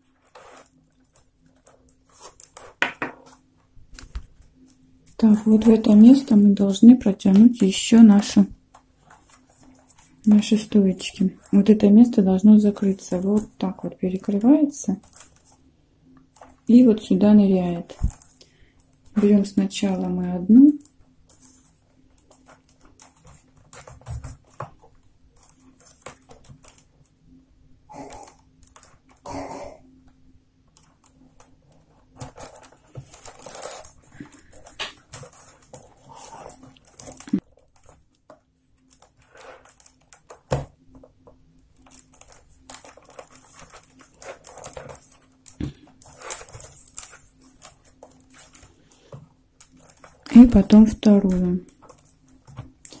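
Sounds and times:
paper tubes rustling and scraping: 0:00.0 - 0:15.7, 0:30.9 - 0:38.1, 0:38.8 - 0:41.1, 0:41.8 - 0:53.0.

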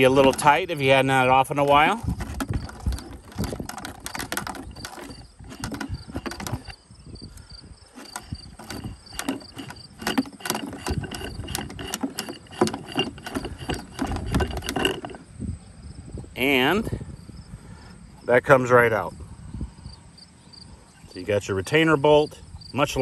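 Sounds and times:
plastic spool clicking and knocking: 0:00.0 - 0:15.3.

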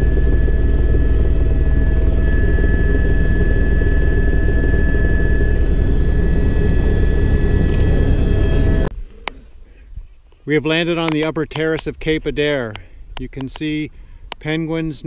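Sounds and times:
helicopter rotor beat: 0:00.0 - 0:08.9
turbine whine: 0:00.0 - 0:09.0.

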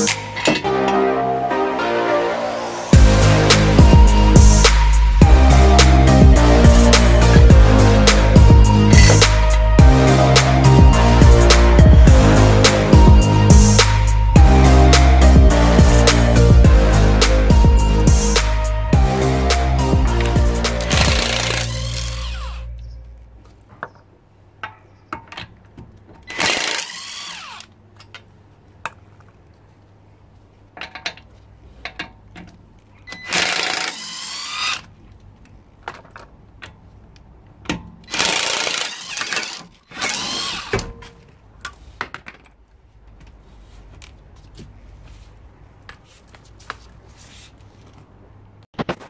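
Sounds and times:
impact wrench bursts: 0:20.8 - 0:22.6, 0:26.3 - 0:27.7, 0:33.1 - 0:34.9, 0:38.0 - 0:40.9.

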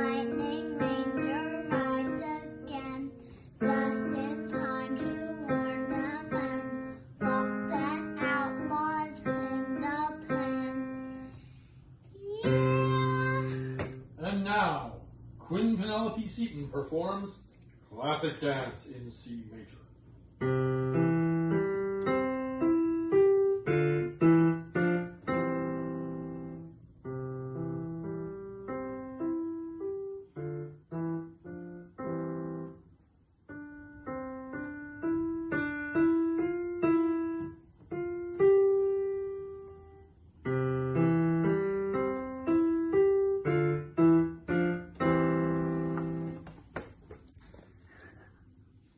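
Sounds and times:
digital piano beginner's piece: 0:00.0 - 0:17.4, 0:20.2 - 0:46.6.

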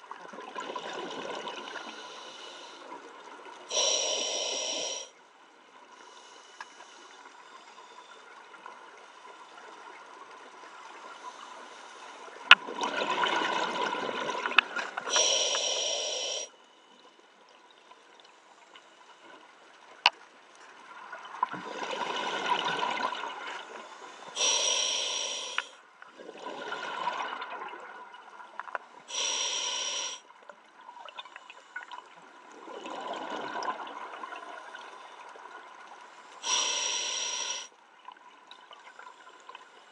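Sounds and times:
exhale bubbling gurgle: 0:00.0 - 0:05.1, 0:12.6 - 0:16.4, 0:32.5 - 0:34.9
regulator inhale hiss: 0:01.7 - 0:03.0, 0:03.7 - 0:05.2, 0:05.9 - 0:08.2, 0:15.0 - 0:17.1, 0:23.8 - 0:25.8, 0:29.1 - 0:30.3, 0:36.3 - 0:37.7.

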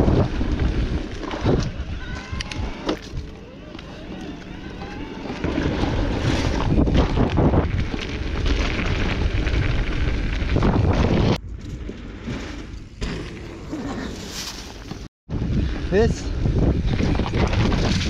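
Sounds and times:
wind buffeting microphone: 0:00.0 - 0:11.4, 0:15.3 - 0:18.0
mountain bike rumbling and rattling: 0:00.0 - 0:18.0.

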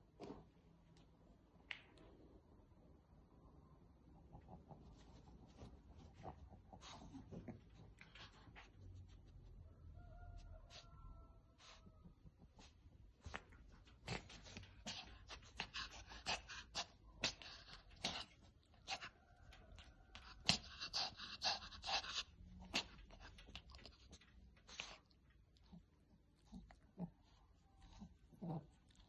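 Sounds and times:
puppy snuffling and breathing: 0:04.3 - 0:09.6, 0:11.6 - 0:29.0.

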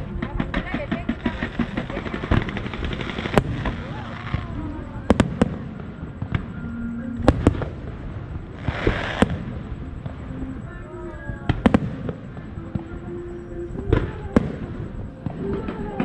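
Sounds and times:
firework hiss: 0:00.0 - 0:06.6, 0:07.2 - 0:10.7
firework shells bursting: 0:00.0 - 0:06.6, 0:07.2 - 0:10.5
people's voices: 0:00.0 - 0:16.0.

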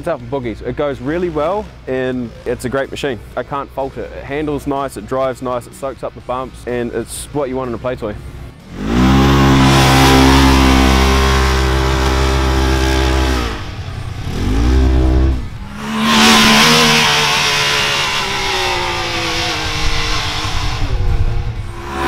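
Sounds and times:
utv engine high note: 0:00.0 - 0:22.0
engine with falling note: 0:08.7 - 0:22.0.

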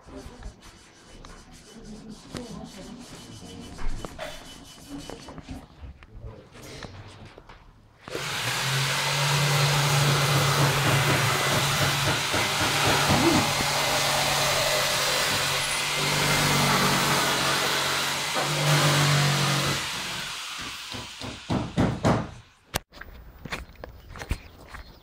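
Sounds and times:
electric blower rushing air: 0:08.1 - 0:19.2.

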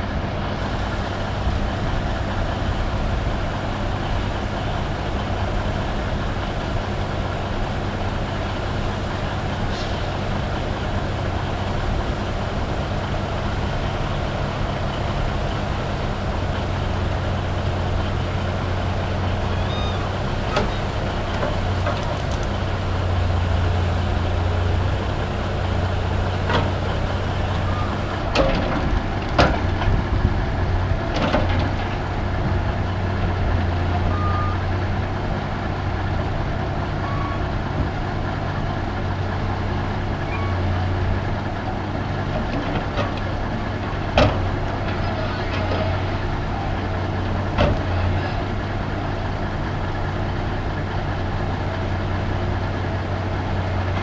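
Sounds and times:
diesel machinery running: 0:00.0 - 0:54.0
metal clanks and knocks: 0:28.3 - 0:30.0.

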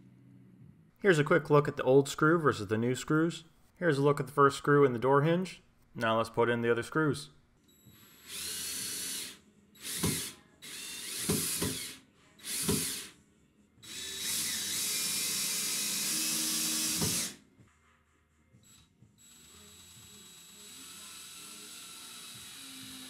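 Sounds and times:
cordless drill driving screws: 0:07.9 - 0:13.1, 0:13.8 - 0:17.4, 0:19.2 - 0:23.0
drill clutch ratcheting: 0:08.0 - 0:13.1.

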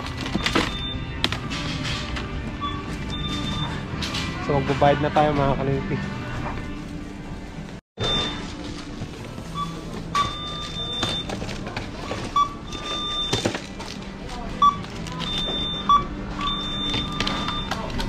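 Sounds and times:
store background noise: 0:00.0 - 0:18.0
barcode scanner beeping: 0:09.4 - 0:11.5, 0:12.3 - 0:13.4, 0:14.6 - 0:18.0.

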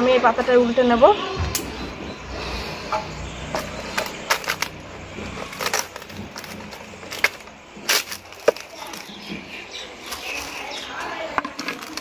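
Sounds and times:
leaves rustling and crackling: 0:03.5 - 0:12.0.

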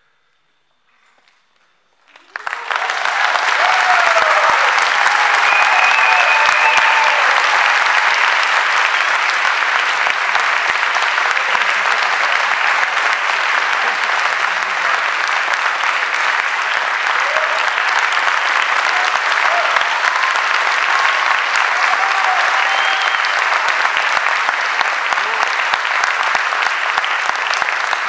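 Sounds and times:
audience applauding: 0:02.0 - 0:28.0.

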